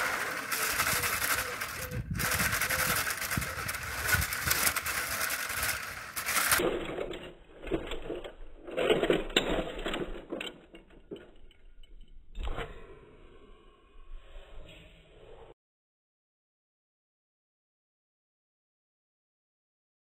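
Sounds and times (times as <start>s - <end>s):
toy tank motors whirring: 0.0s - 10.9s.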